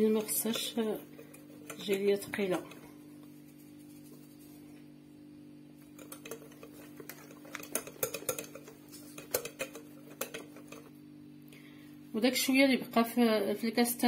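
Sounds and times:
whisk scraping glass bowl: 0.0 - 4.8, 5.8 - 10.9.

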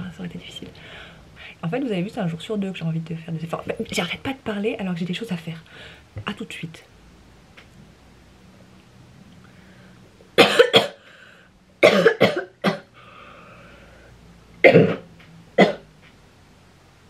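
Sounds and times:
woman coughing: 10.4 - 11.0, 11.8 - 12.9, 14.7 - 15.0.

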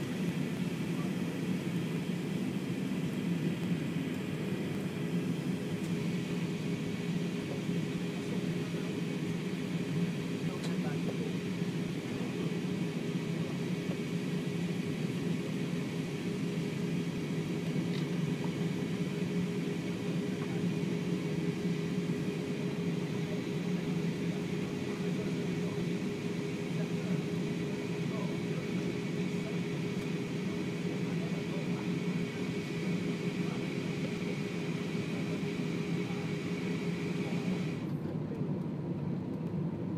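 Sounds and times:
jet engines and airflow hum: 0.0 - 39.9.

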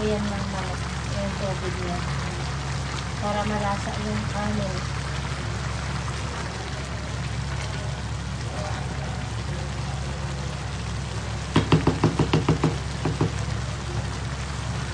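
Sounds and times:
rice bubbling in broth: 0.0 - 14.9
spatula tapping a pan: 11.5 - 13.4.

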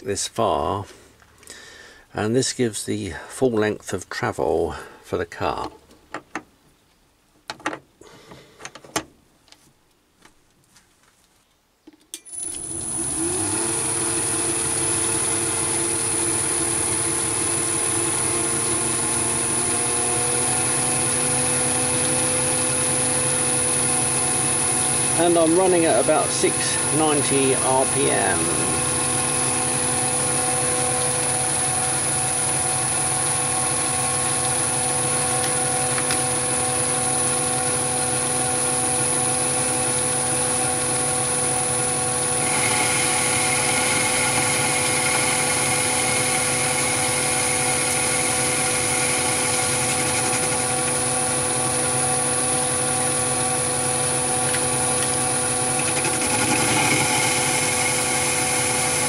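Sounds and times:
higher motor whine: 12.3 - 59.0
lathe motor whine: 12.3 - 59.0.

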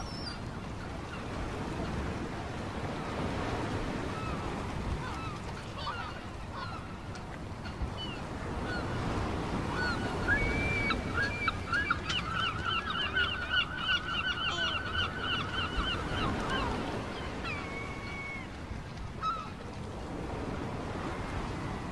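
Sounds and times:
gulls laughing calls: 3.2 - 18.6.

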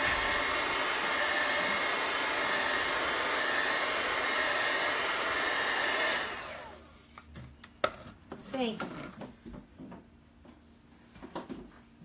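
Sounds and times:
heat tool blowing air: 0.0 - 7.0.

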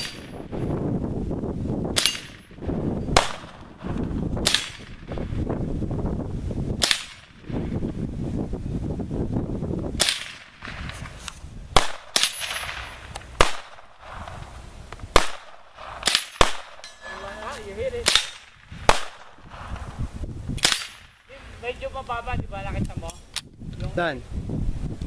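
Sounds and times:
rifle shots: 0.0 - 0.6, 1.9 - 5.3, 6.8 - 7.5, 10.0 - 11.1, 11.7 - 14.5, 15.1 - 16.9, 18.0 - 20.0, 20.6 - 21.4.

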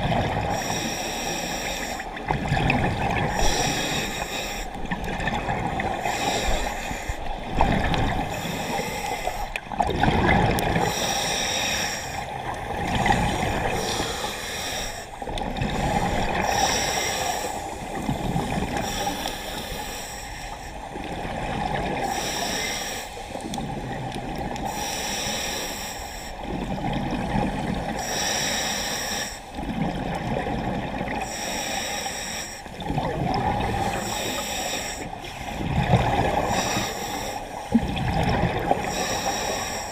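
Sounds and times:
exhaled bubbles rumbling: 0.0 - 0.7, 2.0 - 11.0, 12.2 - 14.3, 15.1 - 19.0, 20.8 - 22.1, 26.4 - 28.0, 29.5 - 31.3, 32.7 - 34.4, 35.5 - 36.9, 37.6 - 39.0
diver inhaling through regulator: 3.2 - 4.8, 5.9 - 9.6, 10.8 - 12.3, 13.0 - 20.6, 22.0 - 23.4, 24.6 - 26.4, 27.9 - 29.6, 31.2 - 32.8, 33.7 - 37.8, 38.8 - 39.9.

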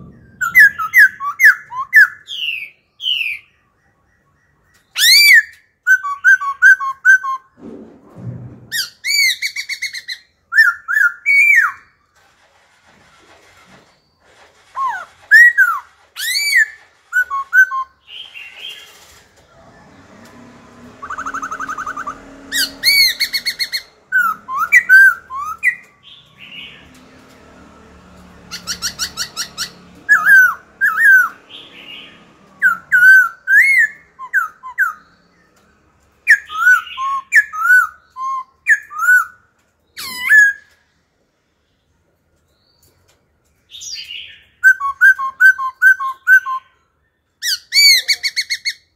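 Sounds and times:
bird singing whistled phrases: 4.4 - 7.5, 14.8 - 18.6, 21.0 - 25.9, 32.6 - 35.1, 36.3 - 39.4, 43.8 - 46.8
bird rattling trills: 20.8 - 26.9, 28.4 - 32.0.

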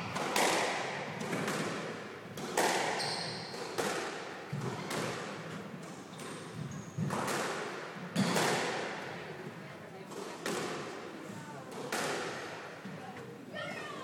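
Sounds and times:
squash ball strikes: 0.0 - 5.4, 6.2 - 9.0, 11.7 - 12.7
shoes squeaking on wooden floor: 3.0 - 3.5.

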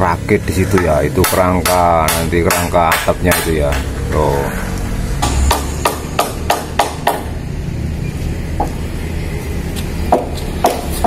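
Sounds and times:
steady low rumble: 0.0 - 9.9
hammer striking timber: 0.7 - 4.0, 5.2 - 7.4, 10.1 - 11.0.

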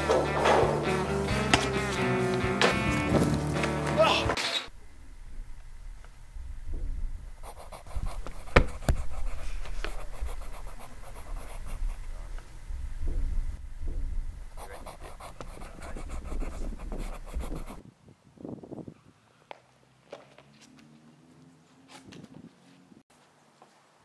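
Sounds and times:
low rumble: 4.8 - 7.4, 11.8 - 14.6
pen scratching on paper: 7.4 - 12.3, 14.6 - 17.8
sharp tap: 8.2 - 9.0.

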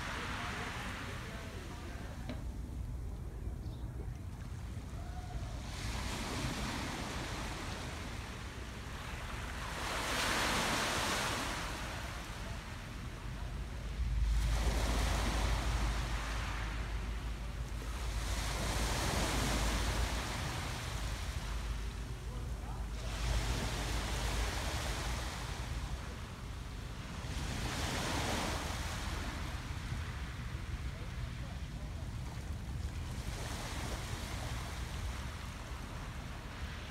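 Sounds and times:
waves washing onto pebbles: 0.0 - 1.1, 9.0 - 12.3, 14.3 - 17.2
small waves breaking on sand: 0.0 - 2.3, 4.3 - 36.9
wind rumbling on microphone: 0.0 - 36.9.

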